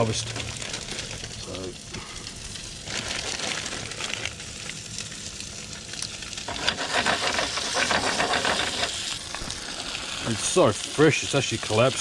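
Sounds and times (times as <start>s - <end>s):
fish frying in butter: 0.0s - 12.0s.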